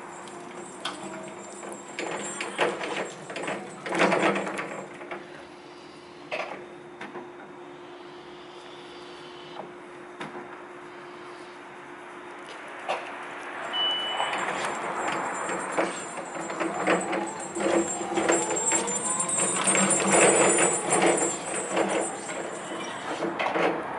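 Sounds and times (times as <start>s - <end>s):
metal clanks and rattles: 0.2s - 5.2s, 14.3s - 23.8s.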